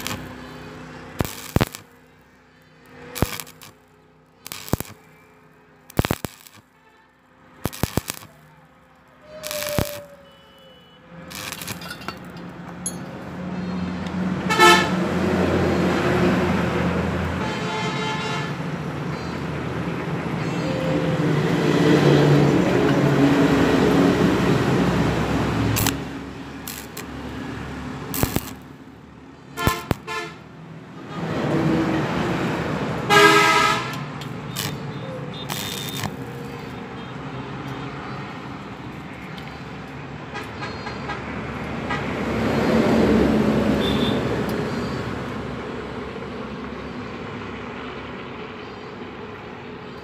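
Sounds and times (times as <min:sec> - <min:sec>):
background road traffic: 0:00.0 - 0:50.0
vehicle horn tooting: 0:06.7 - 0:07.2, 0:09.2 - 0:11.7, 0:14.5 - 0:15.0, 0:17.4 - 0:18.6, 0:29.6 - 0:30.4, 0:33.1 - 0:36.1, 0:43.8 - 0:44.3
vehicle passing: 0:11.1 - 0:17.4, 0:18.5 - 0:39.0, 0:41.2 - 0:48.4.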